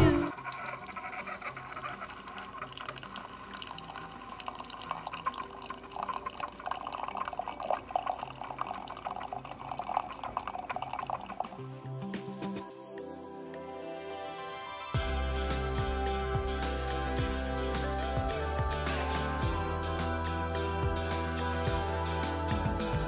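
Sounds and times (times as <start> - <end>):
background music: 0.0 - 0.3, 2.7 - 23.0
coffee trickling into mug: 0.3 - 11.6.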